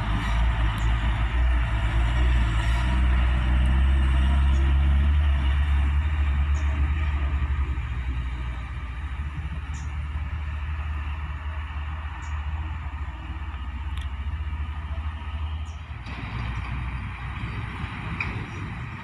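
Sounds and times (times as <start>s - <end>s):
diesel truck engine droning: 0.0s - 19.0s.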